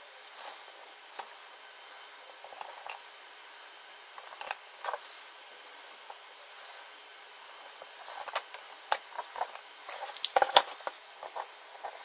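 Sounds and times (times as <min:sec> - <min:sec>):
faint steady hiss: 0:00.0 - 0:12.0
clicks of handling wires: 0:08.2 - 0:12.0.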